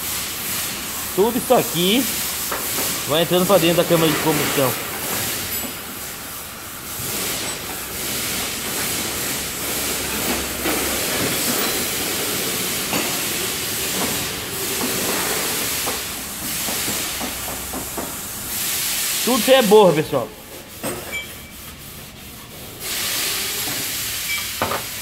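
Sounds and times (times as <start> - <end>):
workshop hiss: 0.0 - 25.0
metal tool scraping: 20.7 - 21.8.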